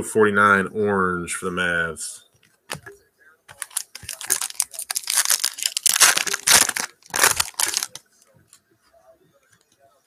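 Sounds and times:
foil wrapper tearing and crinkling: 3.6 - 8.0.

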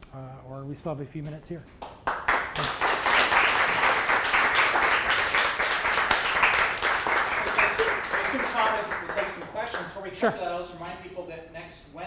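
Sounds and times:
audience applauding: 1.9 - 10.3.

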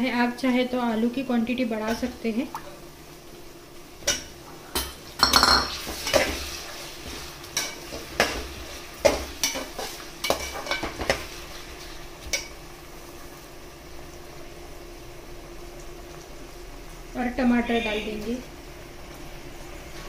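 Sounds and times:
faint sizzle: 0.0 - 20.0.

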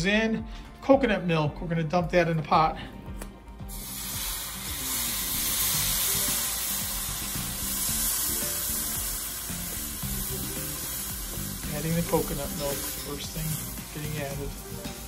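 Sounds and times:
liquid sizzling in a hot wok: 3.7 - 15.0.

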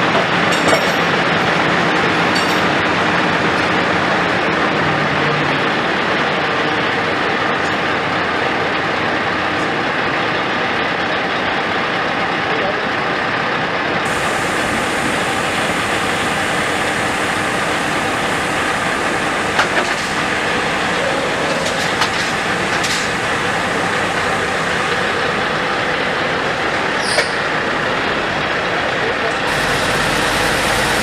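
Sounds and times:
heavy diesel engine running: 0.0 - 31.0
short high squeak: 27.0 - 27.5.

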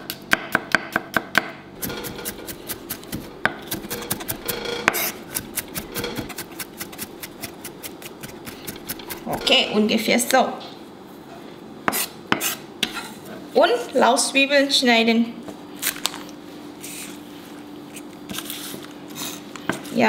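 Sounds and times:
knife chopping on cutting board: 0.0 - 9.4.

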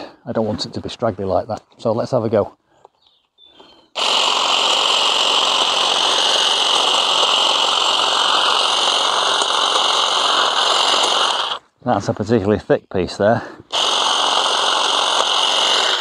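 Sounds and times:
hedge trimmer whining: 3.7 - 11.6, 13.6 - 16.0.

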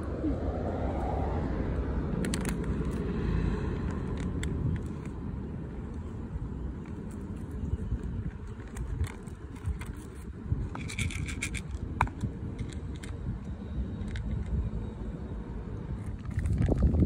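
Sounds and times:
low steady rumble: 0.0 - 17.0
cat crunching dry kibble: 2.2 - 14.7, 16.0 - 17.0.

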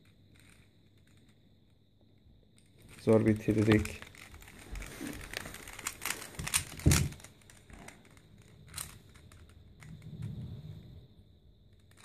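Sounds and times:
plastic puzzle cube clicking: 0.0 - 1.3, 2.6 - 10.1, 11.7 - 12.0.

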